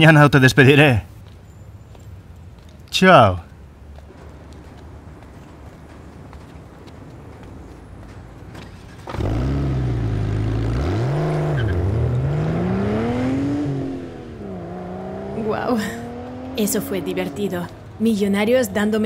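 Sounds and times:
car engine starting and revving: 8.6s - 18.0s.

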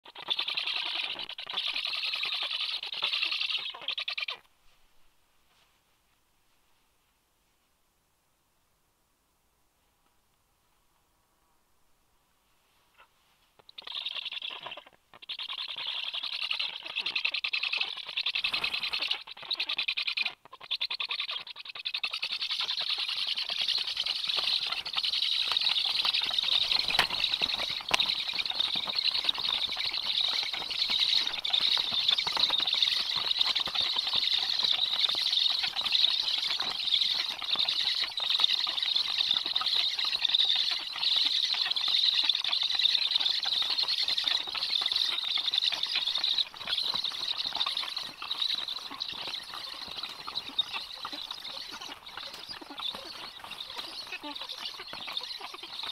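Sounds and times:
young birds hissing begging calls: 0.4s - 4.4s, 22.2s - 39.8s, 45.8s - 55.8s
wings flapping: 18.2s - 19.2s, 22.4s - 55.9s.

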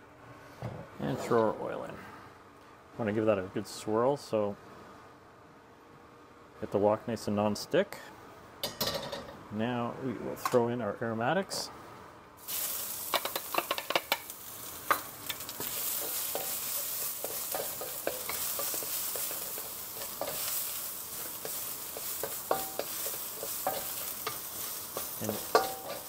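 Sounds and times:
food sizzling in hot oil: 12.4s - 26.0s
wooden spatula scraping a wok: 13.1s - 26.0s.

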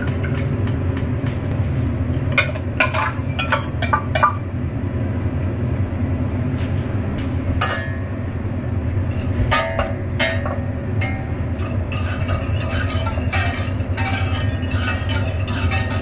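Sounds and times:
steady low rumble: 0.0s - 16.0s
metal utensils clinking on saucepan: 2.4s - 4.3s, 9.1s - 16.0s.

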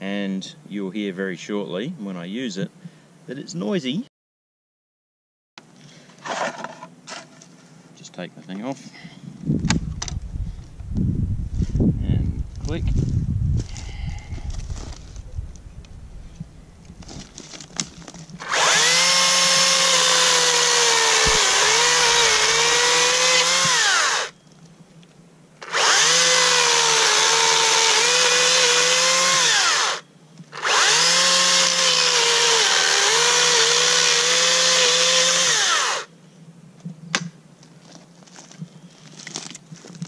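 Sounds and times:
electric chainsaw cutting log: 18.4s - 24.3s, 25.6s - 36.1s.

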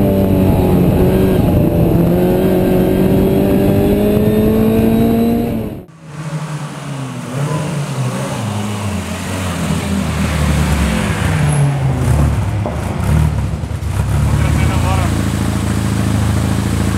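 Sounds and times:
car engine revving: 0.0s - 16.9s
car engine running unevenly: 0.0s - 16.9s.

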